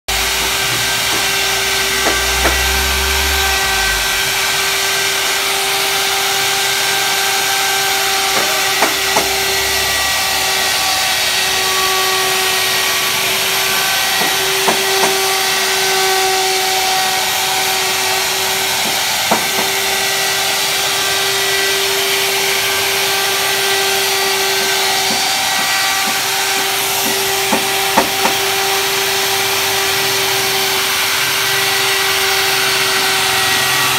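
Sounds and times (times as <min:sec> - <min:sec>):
electric wood router cutting: 0:00.0 - 0:33.9
sharp knocks: 0:00.1 - 0:03.4, 0:08.3 - 0:09.6, 0:14.0 - 0:15.4, 0:18.8 - 0:19.9, 0:24.5 - 0:28.5.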